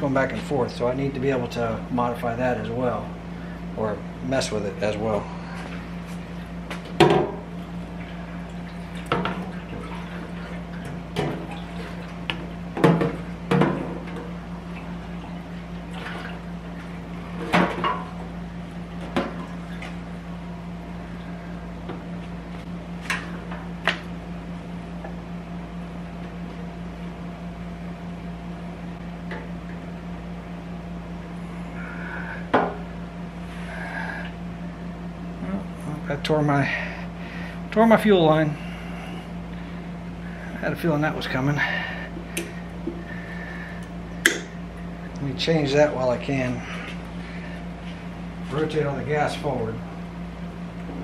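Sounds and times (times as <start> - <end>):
steady low hum: 0.0 - 51.0.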